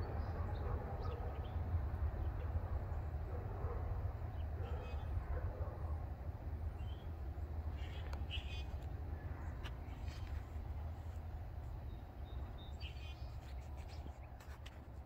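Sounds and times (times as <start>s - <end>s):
distant freight train rumble: 0.0s - 14.3s.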